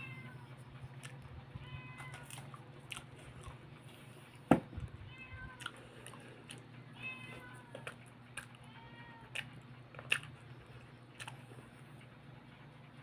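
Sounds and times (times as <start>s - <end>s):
cat meowing: 0.0s - 0.6s, 1.6s - 2.4s, 5.0s - 5.7s, 6.9s - 8.0s, 8.6s - 9.4s
steady low hum: 0.0s - 13.0s.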